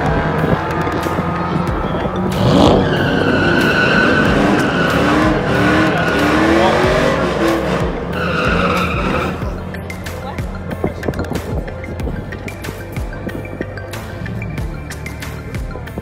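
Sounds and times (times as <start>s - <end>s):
tyres squealing: 0.0s - 11.9s
car engine revving: 0.0s - 16.0s.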